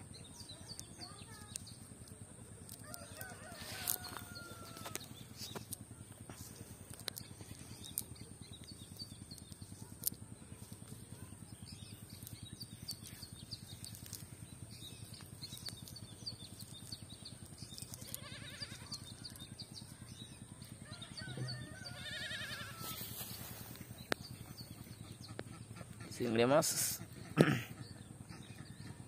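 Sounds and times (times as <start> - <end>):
wavering animal call: 21.1 - 23.0.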